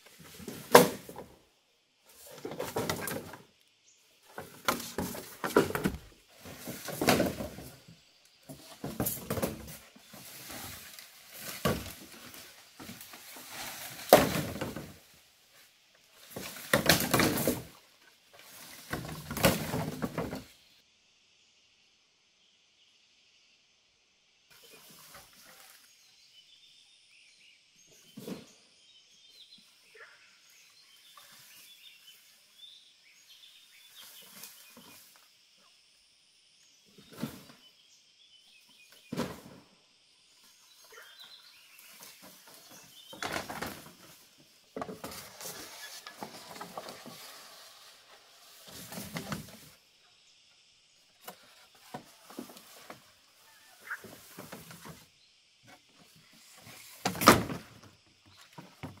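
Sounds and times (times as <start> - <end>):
faint birds chirping: 0.0 - 59.0
bamboo poles thudding on ground: 0.2 - 1.4, 2.2 - 3.5, 4.3 - 7.8, 8.5 - 15.1, 16.2 - 17.8, 18.4 - 20.5, 41.9 - 47.1, 56.7 - 59.0
poles scraping through brush: 4.2 - 20.6, 40.7 - 49.8.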